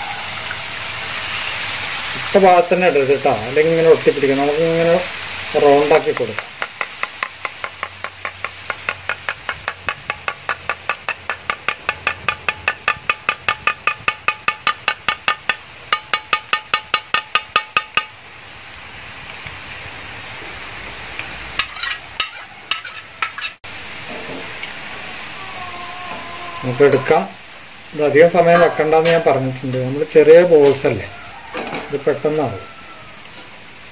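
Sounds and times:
oil sizzling: 0.0s - 33.9s
metal ladle tapping: 6.1s - 18.2s.

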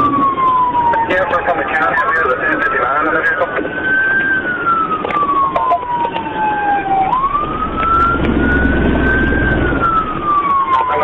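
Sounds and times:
police siren wailing: 0.0s - 11.0s
low rumble: 3.3s - 10.7s.

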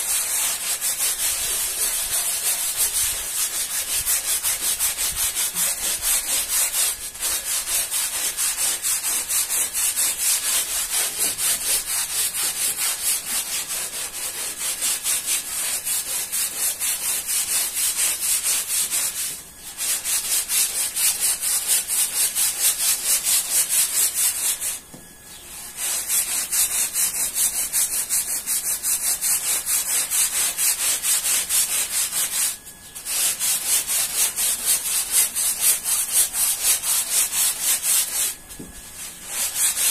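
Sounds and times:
scrub brush scrubbing wet rug: 0.0s - 24.7s, 25.8s - 38.4s, 39.0s - 39.9s.

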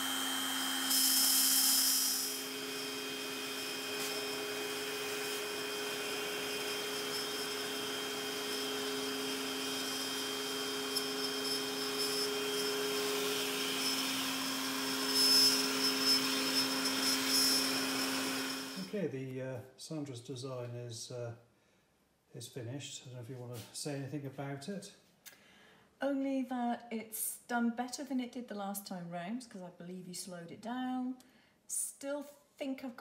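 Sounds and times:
router machine humming with whine: 0.0s - 18.9s.

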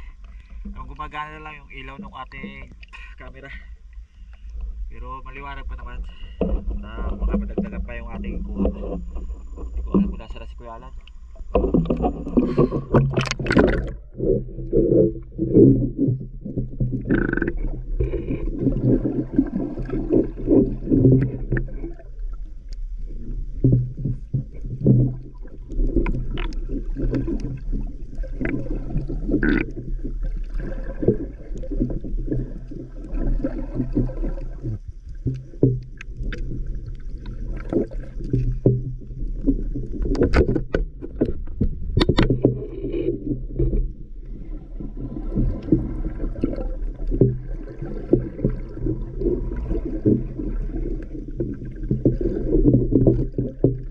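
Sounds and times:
muffled underwater sloshing: 0.0s - 53.9s
sharp clicks and knocks: 11.0s - 15.0s, 38.3s - 43.9s.

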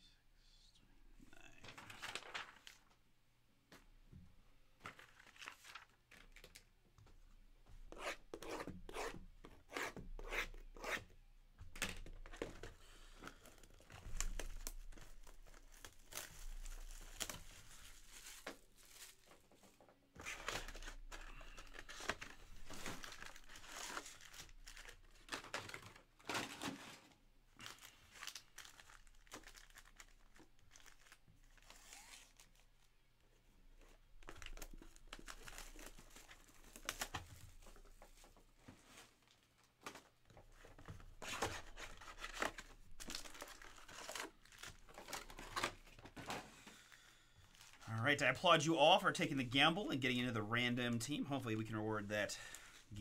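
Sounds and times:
plastic shrink-wrap tearing and crinkling: 1.7s - 2.8s, 13.4s - 19.4s, 20.2s - 26.8s, 27.6s - 32.8s, 41.2s - 46.1s.

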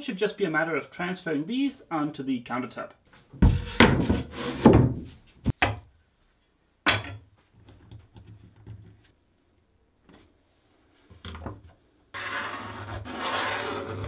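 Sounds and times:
plywood scraping on wood: 3.3s - 5.2s, 12.2s - 14.0s
pencil rubbing on plywood: 12.2s - 14.0s.

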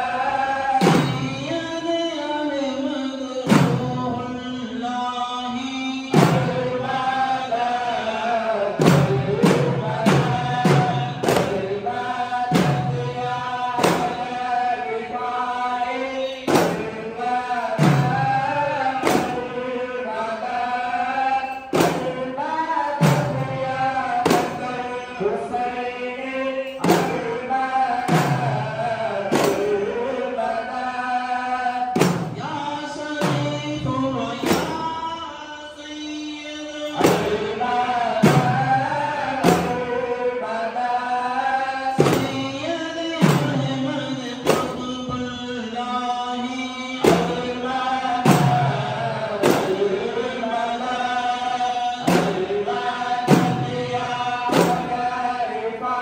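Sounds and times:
men chanting: 0.0s - 56.0s
person singing into microphone: 0.0s - 56.0s
frame drums beating: 0.8s - 1.6s, 3.5s - 4.2s, 6.1s - 7.1s, 8.8s - 14.5s, 16.5s - 19.6s, 21.7s - 22.3s, 23.0s - 25.0s, 26.8s - 29.9s, 31.9s - 35.1s, 36.8s - 40.1s, 41.9s - 45.5s, 47.0s - 50.0s, 52.0s - 55.3s.

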